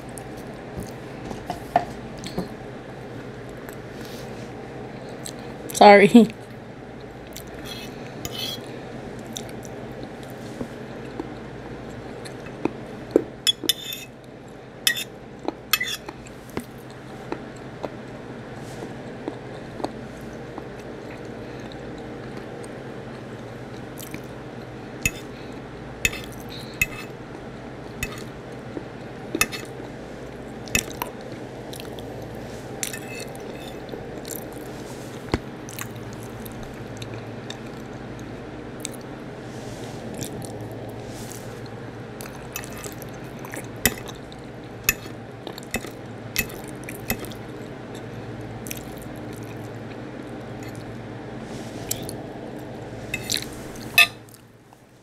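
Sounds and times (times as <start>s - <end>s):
steady low hum: 0.0s - 55.0s
person chewing food: 7.0s - 12.8s, 19.0s - 27.4s, 28.0s - 34.7s, 35.3s - 39.1s, 40.1s - 40.8s, 41.6s - 51.0s, 51.9s - 54.5s.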